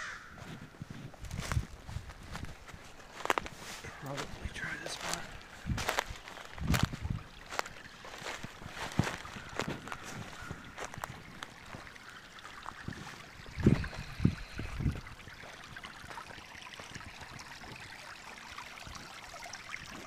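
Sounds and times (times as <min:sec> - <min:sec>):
creek water rippling: 0:00.0 - 0:20.0
dull low thumps: 0:05.6 - 0:07.3.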